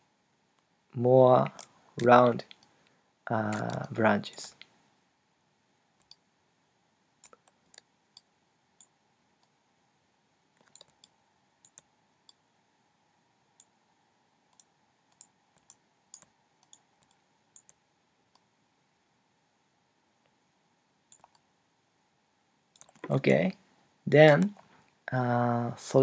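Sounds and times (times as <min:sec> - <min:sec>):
faint steady hiss: 0:00.0 - 0:26.0
mouse and keyboard clicks: 0:03.5 - 0:03.9, 0:06.0 - 0:06.2, 0:10.6 - 0:12.4, 0:14.5 - 0:18.5, 0:21.1 - 0:21.4, 0:22.8 - 0:23.1.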